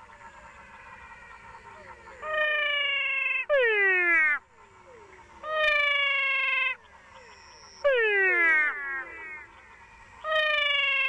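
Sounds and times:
chorus of faint frog calls: 0.0 - 11.0
frog mewing calls: 0.0 - 11.0.

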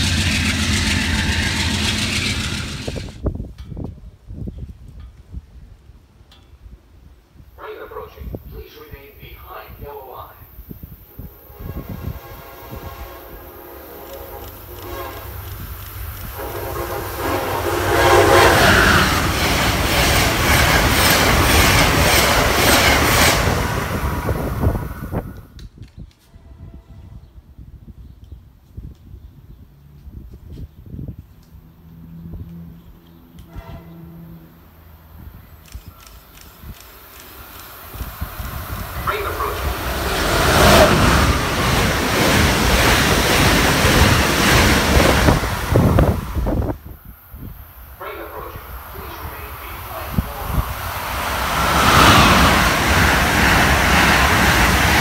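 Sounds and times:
train rushing past: 0.0 - 3.3, 11.0 - 25.6, 31.6 - 55.0
wheels clacking over rail joints: 0.0 - 3.8, 17.9 - 24.1, 35.7 - 46.0
wheel noise on rails: 0.0 - 6.6, 10.7 - 26.9, 28.6 - 55.0
wind buffeting microphone: 0.0 - 7.6, 9.7 - 31.6, 35.1 - 48.0, 48.6 - 55.0
train horn: 11.1 - 15.6, 16.3 - 19.2, 26.3 - 27.3, 33.4 - 34.6.

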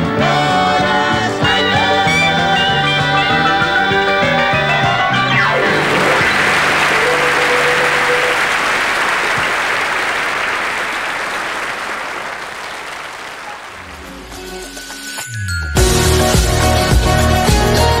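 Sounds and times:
audience applause: 5.5 - 14.4.

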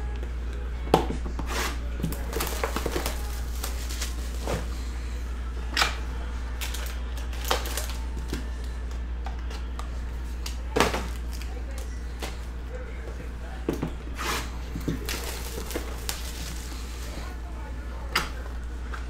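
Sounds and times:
steady low hum: 0.0 - 19.0
plastic wrap crinkling and tearing: 2.0 - 4.7, 6.6 - 8.3, 10.4 - 11.9, 14.6 - 17.1.

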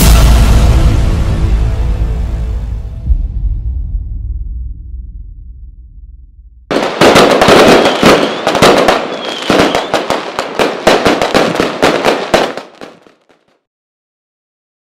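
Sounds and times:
fireworks crackling and banging: 6.7 - 13.6
firework whistles: 7.1 - 10.2.

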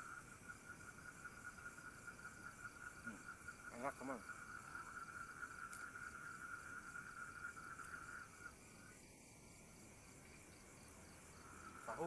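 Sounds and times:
high-pitched insect buzz: 0.0 - 9.1
crickets trilling: 0.0 - 12.0.

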